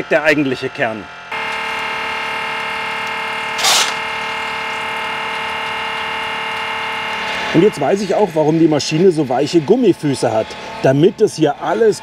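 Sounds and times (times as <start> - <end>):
vibrating soil sieve hum: 0.0 - 12.0
short rustling burst: 3.6 - 4.1.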